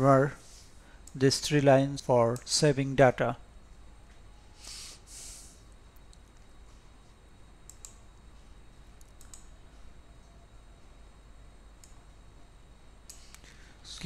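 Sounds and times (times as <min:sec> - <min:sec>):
short hiss: 0:04.6 - 0:05.6
computer mouse clicks: 0:07.7 - 0:08.0, 0:09.0 - 0:09.5, 0:11.8 - 0:12.0.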